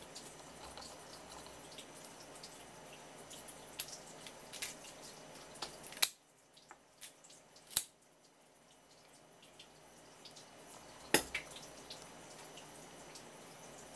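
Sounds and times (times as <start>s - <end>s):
crab shell clicking and crackling: 0.0s - 2.6s, 3.3s - 8.0s.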